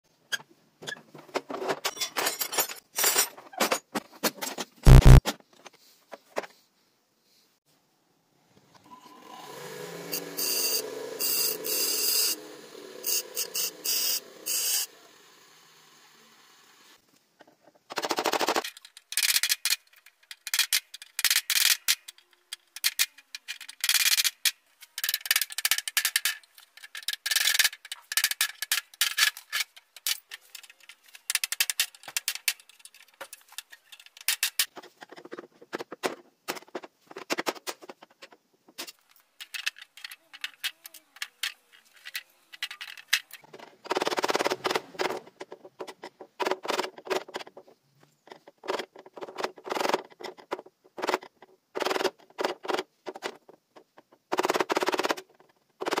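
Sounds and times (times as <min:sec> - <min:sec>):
screwdriver scraping plastic: 0:04.8 - 0:05.2
bench grinder grinding steel: 0:09.1 - 0:17.0
grinder motor running: 0:09.3 - 0:16.8.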